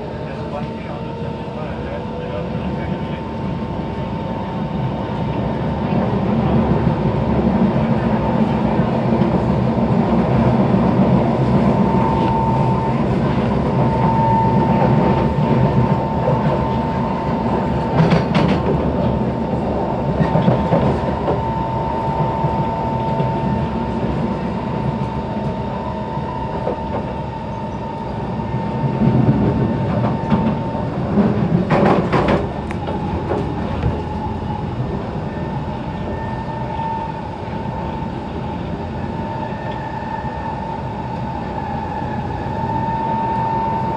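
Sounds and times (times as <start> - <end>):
train wheels rumbling on rails: 0.0 - 43.9
traction motor whine: 10.3 - 43.9.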